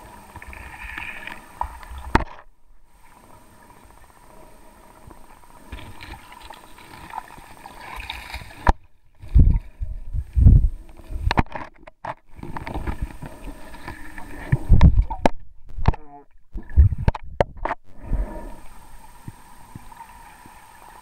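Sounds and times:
muffled underwater river water: 0.0 - 21.0
low thumps and sloshing: 5.0 - 18.4.

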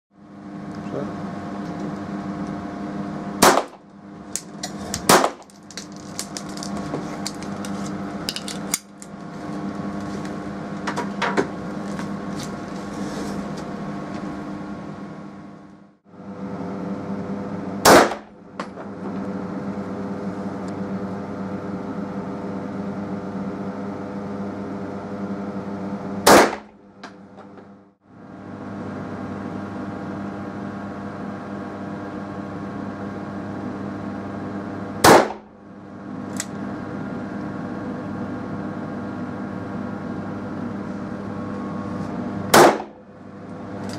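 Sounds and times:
steady hum with tones: 0.2 - 43.9
pistol shots: 3.4 - 3.8, 5.1 - 5.5, 17.8 - 18.3, 26.3 - 26.7, 35.0 - 35.5, 42.5 - 43.0
small cracks and clicks: 4.4 - 9.2.

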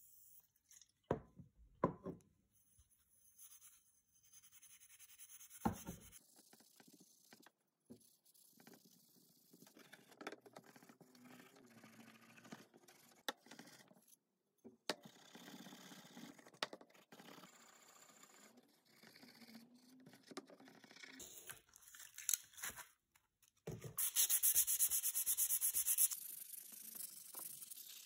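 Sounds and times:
sandpaper rubbing metal shaft: 24.0 - 28.0.

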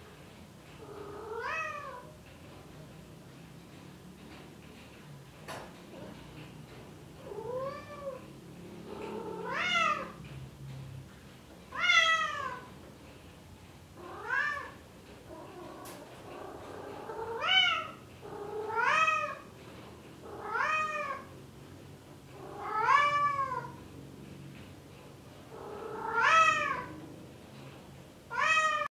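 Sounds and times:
cat meowing: 0.8 - 2.1, 9.0 - 10.2, 11.7 - 12.7, 14.0 - 14.8, 16.8 - 19.5, 20.3 - 21.3, 22.4 - 23.8, 25.5 - 27.0, 28.3 - 28.9.

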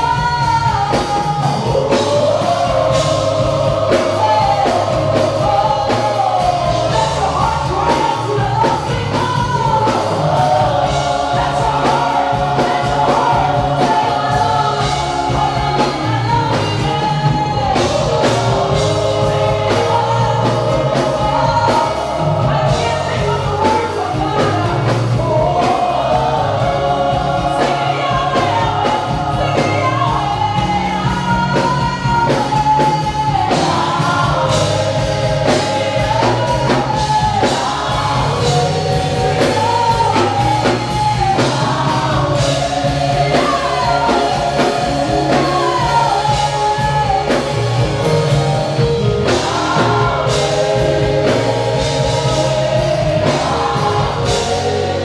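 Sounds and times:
backing singers harmonising: 0.0 - 55.0
band with bass and drums: 0.0 - 55.0
woman singing lead: 0.0 - 55.0.

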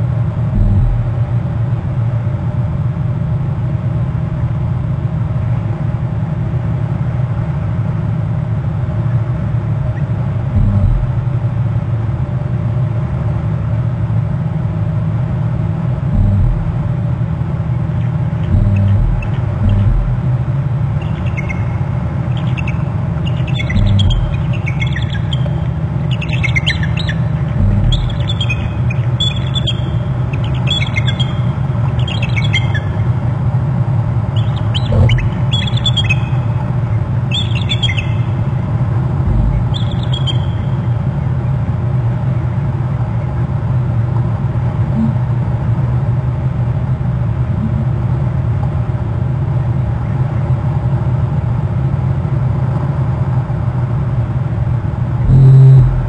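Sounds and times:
dull low thumps: 0.5 - 1.6, 10.4 - 11.4, 16.1 - 17.2, 18.4 - 22.2, 23.4 - 30.3, 34.8 - 35.9, 38.4 - 41.0, 55.2 - 56.0
low rumble: 0.5 - 1.6, 10.4 - 11.5, 16.1 - 17.2, 18.4 - 22.4, 23.3 - 32.1, 34.6 - 36.9, 38.4 - 41.1, 55.2 - 56.0
eagle calling: 0.6 - 1.2, 10.6 - 11.2, 16.2 - 17.0, 18.4 - 20.3, 21.0 - 33.0, 34.4 - 41.0, 55.2 - 56.0.

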